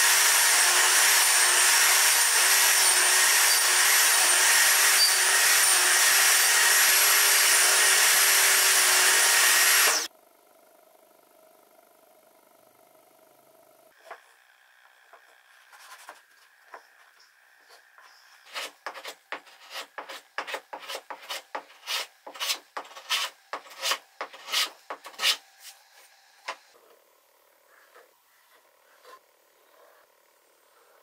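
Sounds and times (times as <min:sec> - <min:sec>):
hand plane shaving wood: 0:17.7 - 0:25.8.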